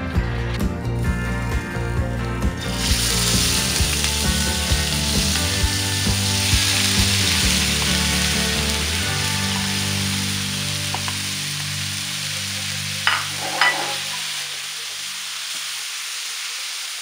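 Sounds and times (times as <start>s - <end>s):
background music with steady beat: 0.0s - 11.8s
meat sizzling in hot oil: 2.6s - 17.0s.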